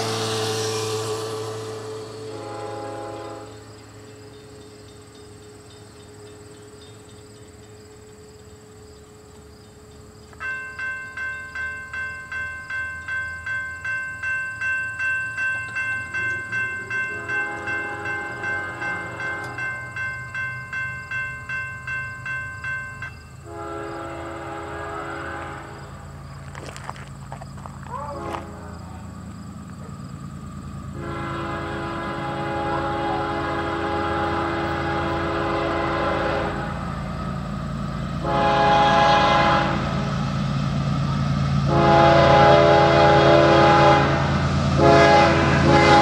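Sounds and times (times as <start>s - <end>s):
locomotive horn blasts: 0.0s - 3.7s, 16.2s - 19.8s, 23.4s - 26.1s, 27.9s - 29.1s, 30.9s - 37.2s, 38.2s - 40.4s, 41.6s - 46.0s
crossing warning bell clanging: 0.0s - 46.0s.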